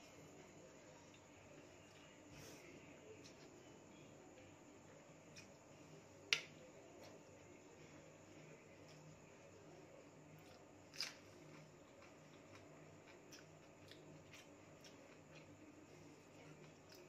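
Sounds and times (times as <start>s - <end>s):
faint chewing: 6.3s - 17.0s.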